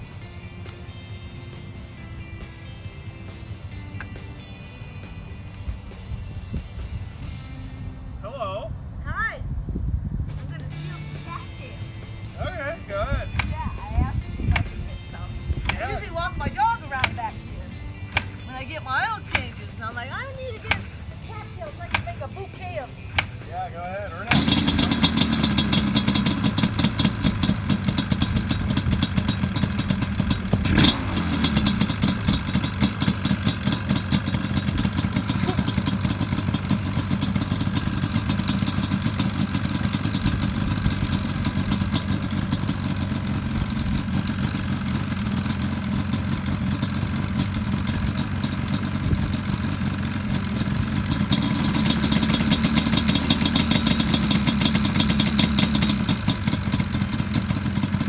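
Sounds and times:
two-stroke engine idling: 0:12.4 - 0:58.0
sharp crack: 0:18.1 - 0:18.4, 0:19.2 - 0:19.6, 0:23.1 - 0:23.5, 0:24.3 - 0:43.2.

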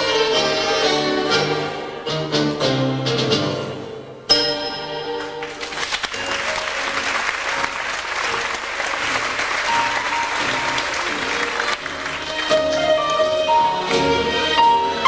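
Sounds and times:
audience applauding: 0:05.4 - 0:13.3
stage dance music: 0:05.4 - 0:14.6.

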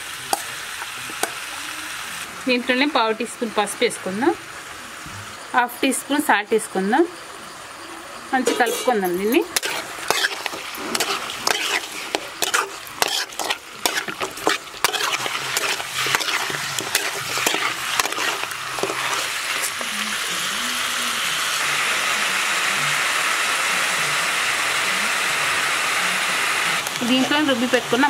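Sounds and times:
chicken frying sizzle: 0:00.0 - 0:07.0, 0:08.4 - 0:28.0
metal spoon scraping pan: 0:08.4 - 0:20.3.

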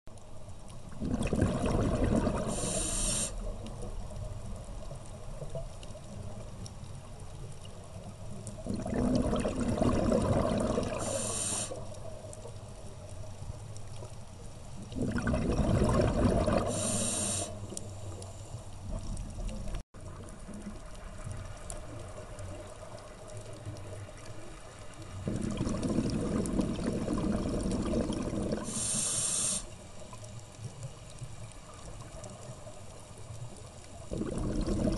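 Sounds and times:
diver regulator bubbling exhalations: 0:00.9 - 0:03.4, 0:08.6 - 0:11.8, 0:14.9 - 0:17.6, 0:25.2 - 0:29.6, 0:34.1 - 0:34.9.

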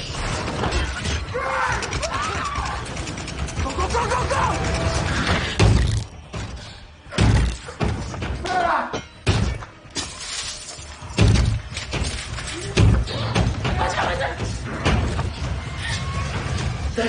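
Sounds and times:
glass cracking and shattering: 0:00.0 - 0:06.2, 0:08.5 - 0:13.1.

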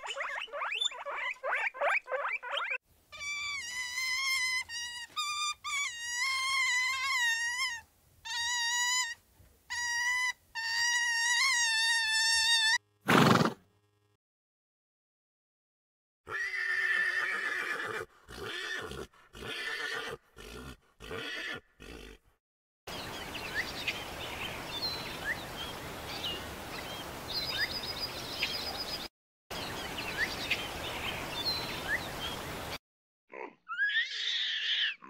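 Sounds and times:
birds chirping: 0:00.0 - 0:02.8, 0:22.9 - 0:32.8
horse whinnying: 0:16.3 - 0:22.2
outdoor hiss: 0:22.9 - 0:29.0, 0:29.6 - 0:32.8.

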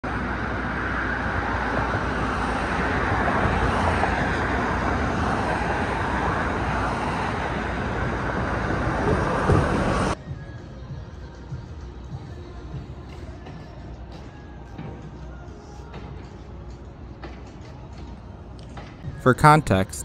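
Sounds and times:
road traffic rushing: 0:00.0 - 0:10.2.

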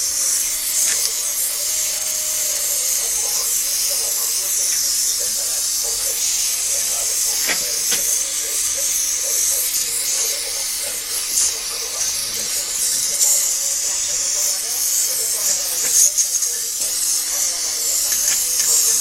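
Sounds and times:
welding torch flame hissing: 0:00.0 - 0:19.0
small clicks: 0:00.7 - 0:01.2.

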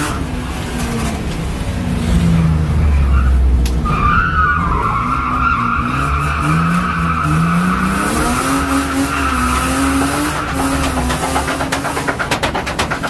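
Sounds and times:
engine revving: 0:05.8 - 0:12.3.

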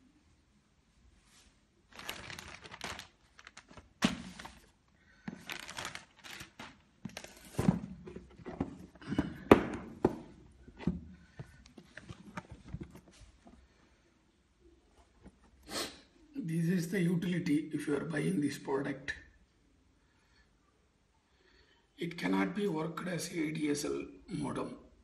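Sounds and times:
plastic bag rustling: 0:01.3 - 0:09.1.

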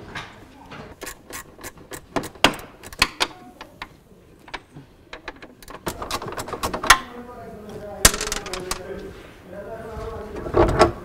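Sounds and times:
tools clicking and knocking on car panels: 0:01.6 - 0:03.4.

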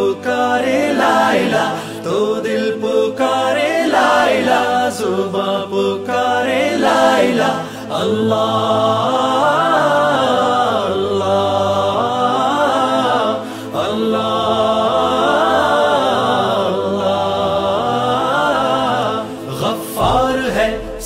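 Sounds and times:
wordless voice melody: 0:00.0 - 0:21.0
steady low drone: 0:16.8 - 0:21.0.

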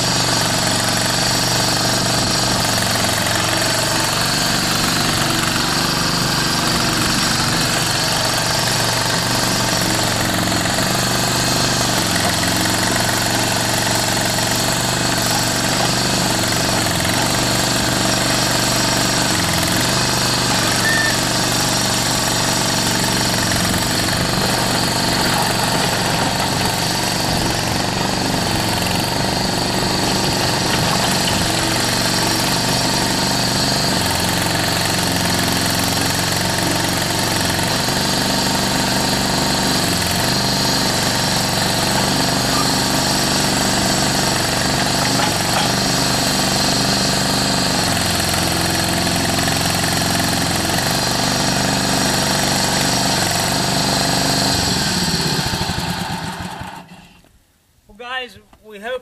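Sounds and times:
skid steer loader engine running: 0:00.0 - 0:57.2.

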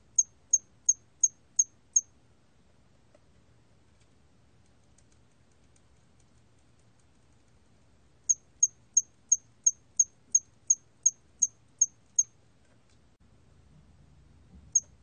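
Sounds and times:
cricket chirping: 0:00.0 - 0:02.1, 0:08.3 - 0:12.3.

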